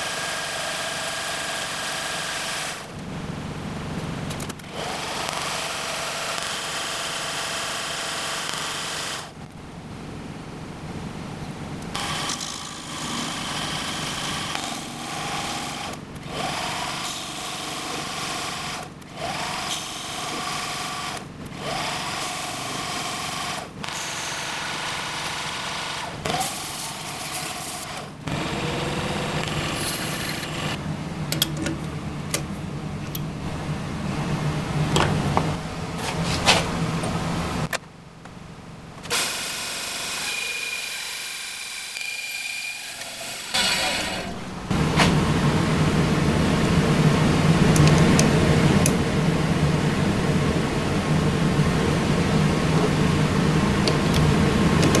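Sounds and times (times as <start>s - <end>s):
bandsaw humming: 11.9s - 30.8s, 39.1s - 46.1s
metal lathe motor whine: 12.0s - 30.8s, 39.1s - 44.6s.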